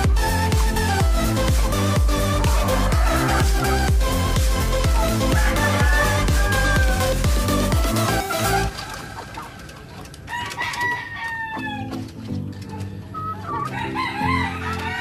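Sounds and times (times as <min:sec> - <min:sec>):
background music with beat: 0:00.0 - 0:09.0
hens clucking: 0:00.0 - 0:15.0
rooster crowing: 0:02.6 - 0:03.7, 0:05.2 - 0:07.1, 0:10.3 - 0:12.0, 0:13.7 - 0:15.0.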